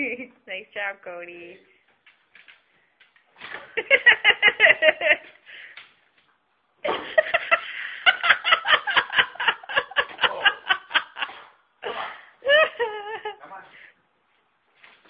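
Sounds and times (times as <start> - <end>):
people laughing: 3.8 - 5.4, 7.0 - 11.4.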